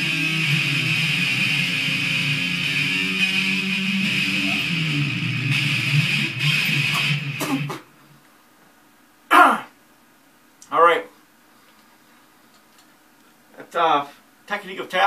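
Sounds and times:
electric guitar lead: 0.0s - 7.8s.

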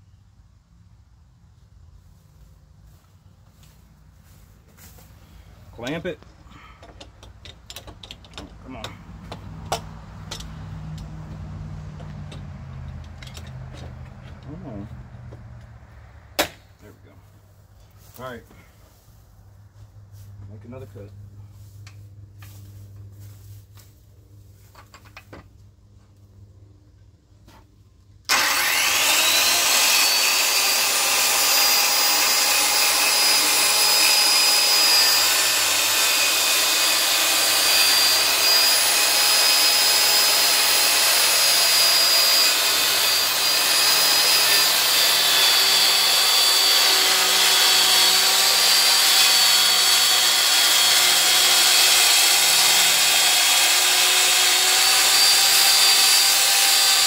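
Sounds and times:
circular saw cutting wood: 28.3s - 57.0s.

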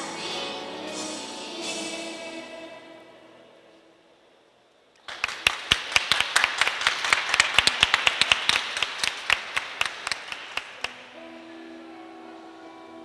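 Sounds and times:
sharp close hand claps: 5.0s - 11.0s
audience applause: 5.1s - 11.1s.

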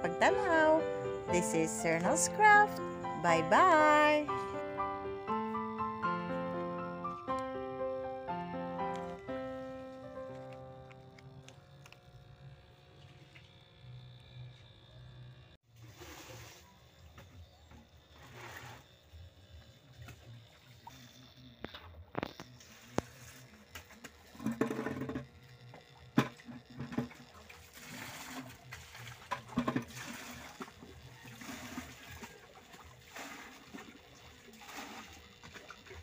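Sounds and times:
water trickling and splashing: 27.0s - 36.0s.

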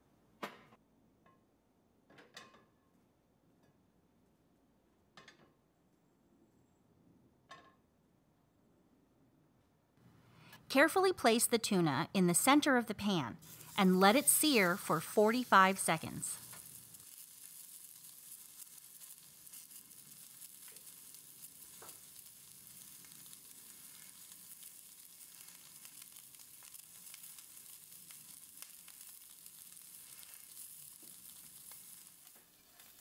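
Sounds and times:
small crackles of oil: 13.4s - 13.8s, 16.4s - 33.0s
fish searing in a hot pan: 13.4s - 33.0s.

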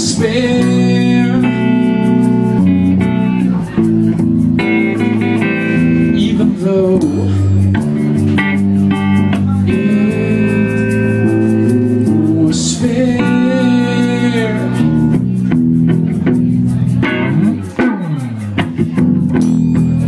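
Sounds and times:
man singing: 0.0s - 3.8s, 4.9s - 7.8s, 9.3s - 15.4s
electric bass: 0.0s - 20.0s
guitar: 0.0s - 20.0s.

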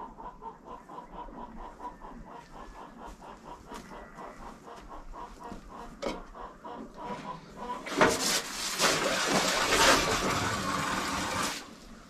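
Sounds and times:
chickens clucking: 0.0s - 8.4s
hose water splashing into metal tub: 7.8s - 11.7s.

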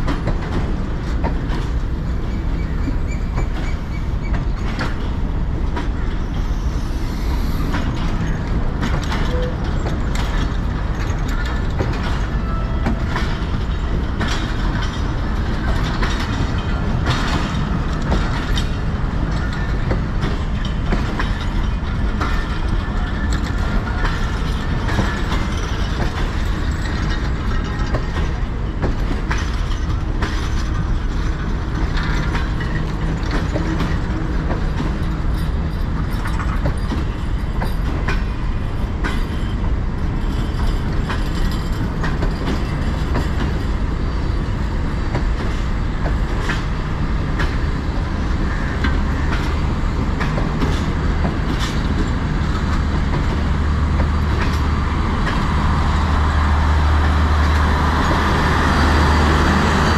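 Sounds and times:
train wheels rumbling on rails: 0.0s - 59.9s
coupling clanks and rattles: 7.7s - 44.0s.

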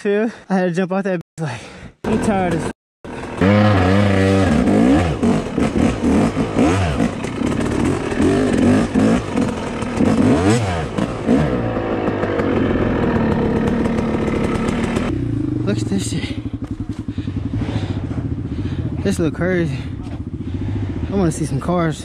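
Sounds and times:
dirt bike engine revving: 2.1s - 22.0s.

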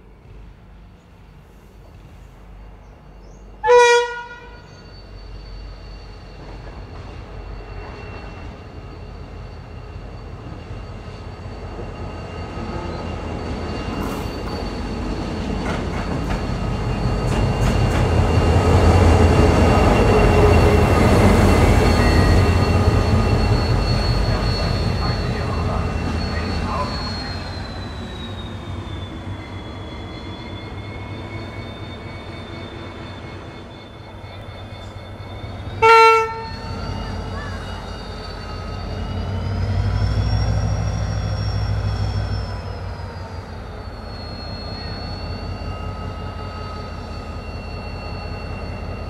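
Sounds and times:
diesel locomotive engine rumbling: 0.0s - 49.0s
locomotive horn blast: 3.6s - 4.8s, 35.7s - 37.0s.

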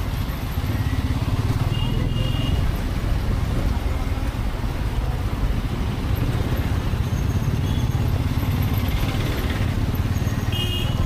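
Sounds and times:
motorcycle engine rumbling: 0.0s - 11.0s.

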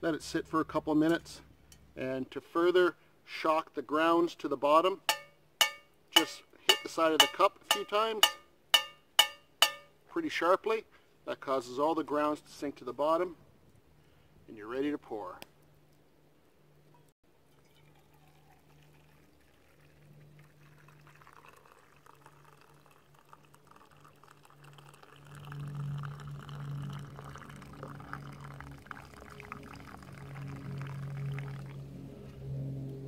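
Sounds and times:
coffee pouring into a mug: 17.4s - 31.8s
low hum: 24.4s - 33.0s.

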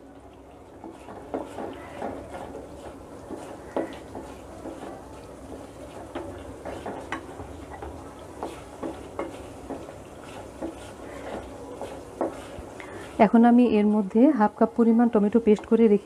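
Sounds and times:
paste sizzling in oil: 0.0s - 16.0s
spoon scraping paste in a pan: 0.7s - 13.5s
spoon knocking against pan: 0.8s - 5.0s, 6.1s - 9.9s, 10.5s - 12.5s.

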